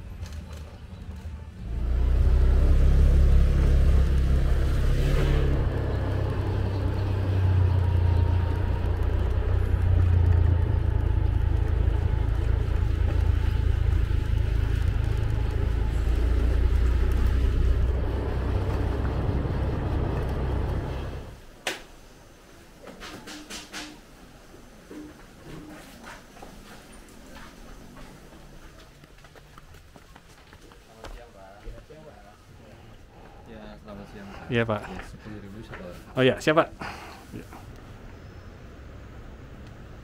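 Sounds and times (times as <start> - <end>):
motorcycle engine rumbling: 0.8 - 21.4.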